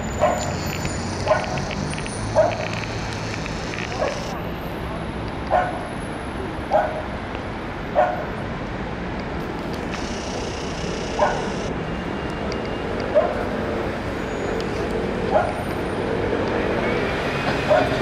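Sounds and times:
city traffic noise: 0.0 - 18.0
dog barking: 0.2 - 0.6, 1.2 - 1.6, 2.4 - 2.6, 3.9 - 4.3, 5.5 - 5.9, 6.7 - 7.1, 8.0 - 8.3, 11.2 - 11.6, 13.2 - 13.5, 15.3 - 15.6, 17.7 - 18.0.

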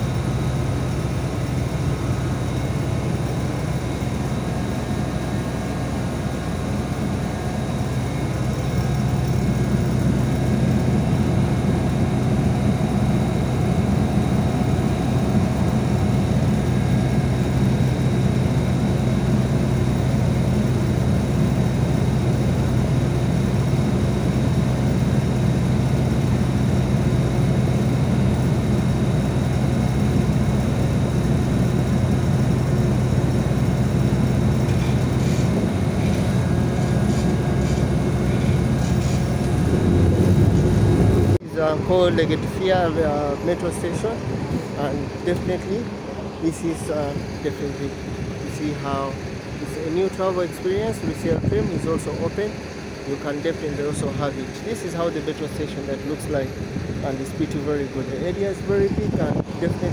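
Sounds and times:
bus engine idling: 0.0 - 59.9.

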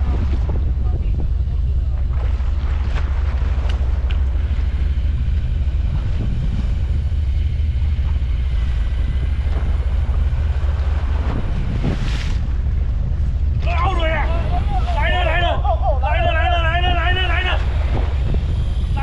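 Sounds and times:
boat engine running: 0.0 - 19.0
wind buffeting microphone: 0.0 - 19.0.

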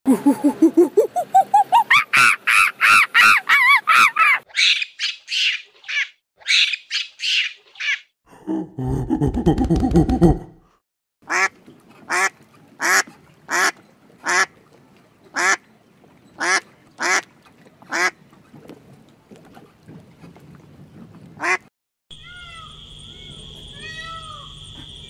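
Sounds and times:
waterfowl harsh calls: 1.9 - 5.6, 12.1 - 14.5, 15.4 - 15.6, 16.4 - 17.2, 17.9 - 18.2.

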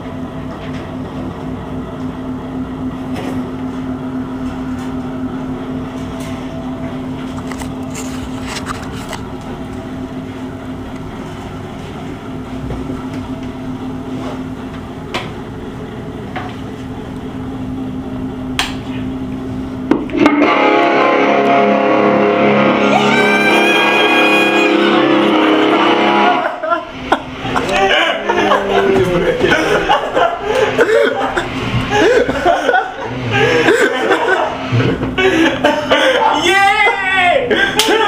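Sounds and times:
steady hum: 0.0 - 38.0
loud guitar music: 19.9 - 35.2.

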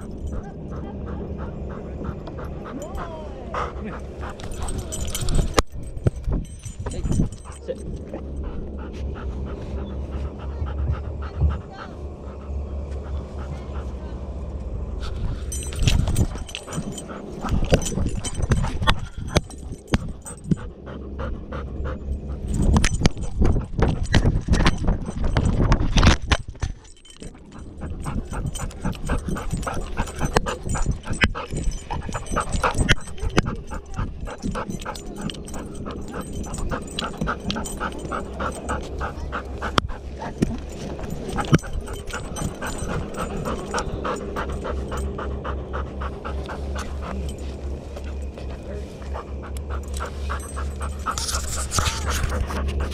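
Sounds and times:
dog panting: 0.0 - 52.9
thumps and jostling: 4.0 - 8.8, 15.0 - 20.8, 22.1 - 45.3, 49.6 - 52.9.

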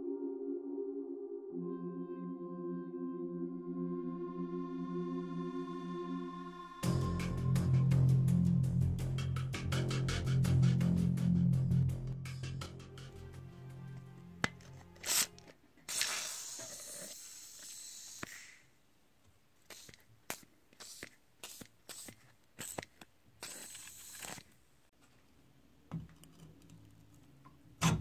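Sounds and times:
aerosol spray hissing: 14.9 - 18.6, 19.6 - 24.4.

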